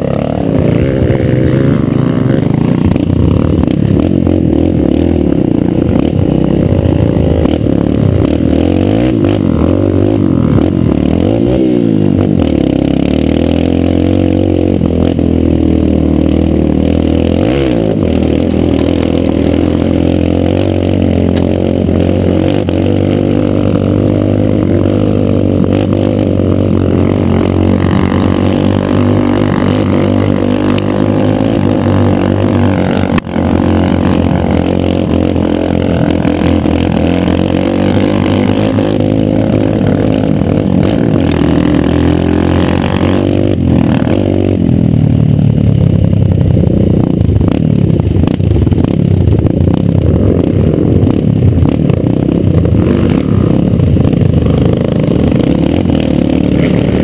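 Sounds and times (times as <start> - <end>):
dirt bike engine running: 0.0 - 57.0
bike rattling and clattering: 46.0 - 57.0.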